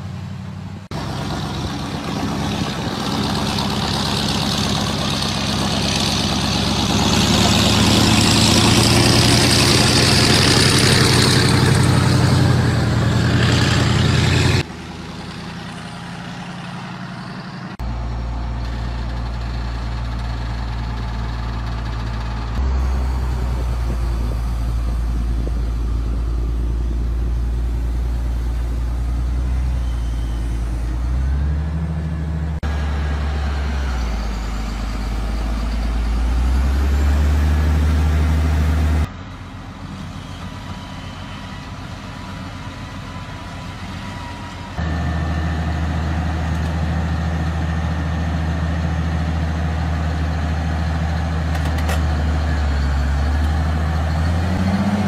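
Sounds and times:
low diesel rumble: 0.0s - 55.0s
excavator engine with harsh hiss: 22.2s - 51.4s.

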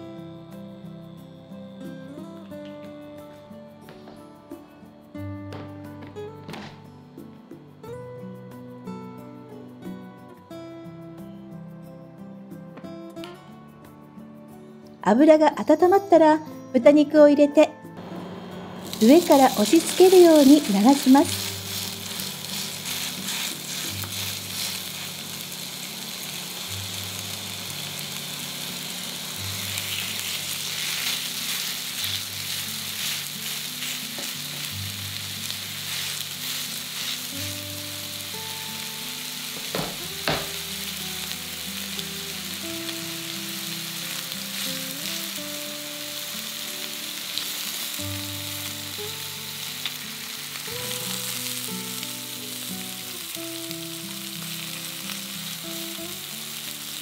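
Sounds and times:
soft background music: 0.0s - 57.0s
meat sizzling in a frying pan: 18.7s - 57.0s.

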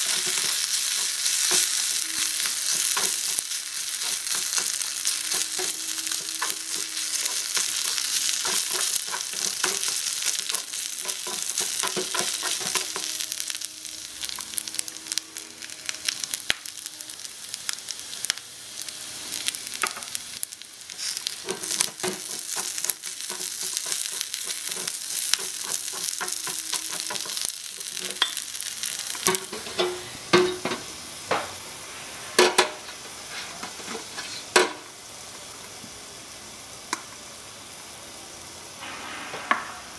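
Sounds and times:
meat sizzling in a wok: 0.0s - 39.9s
frying pan knocking on stove: 4.1s - 13.1s, 21.5s - 27.4s.

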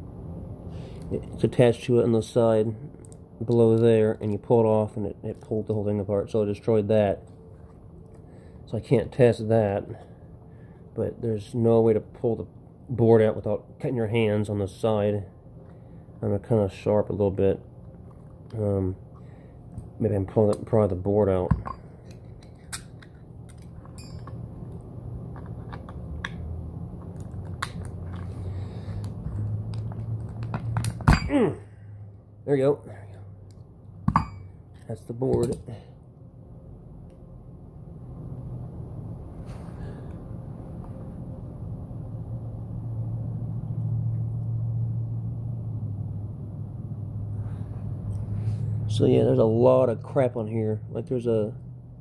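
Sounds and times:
low steady hum: 0.0s - 52.0s.

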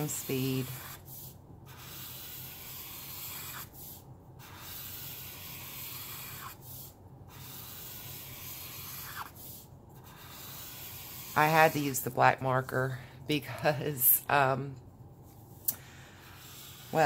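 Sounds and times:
marker scratching on paper: 0.0s - 12.7s, 16.2s - 17.0s.

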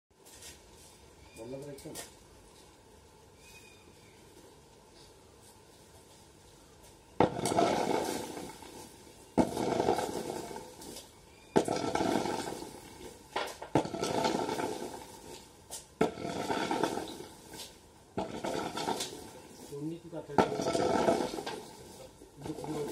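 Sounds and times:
nuts rattling and rolling: 7.2s - 19.7s.

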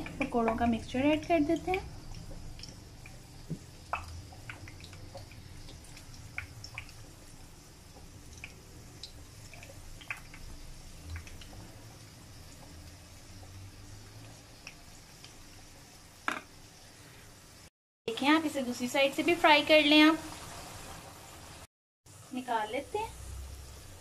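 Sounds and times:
batter frying in hot oil: 0.0s - 24.0s
small pops and crackles: 1.6s - 7.2s, 7.9s - 11.7s.

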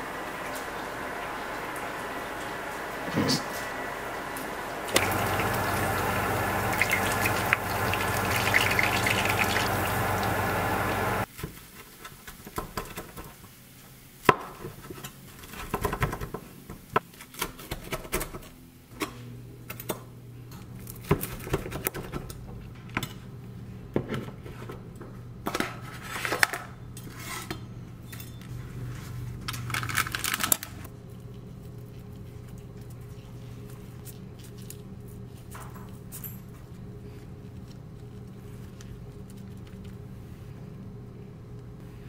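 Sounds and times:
low steady hum: 0.0s - 11.3s.

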